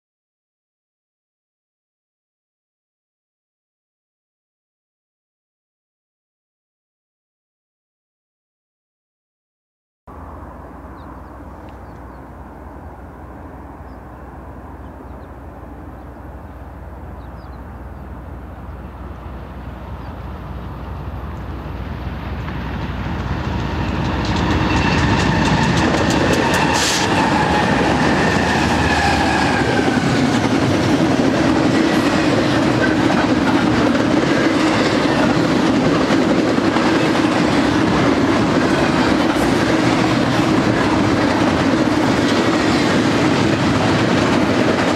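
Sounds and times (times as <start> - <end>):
diesel locomotives passing: 10.1 - 44.9
train cars rolling on rails: 10.2 - 44.9.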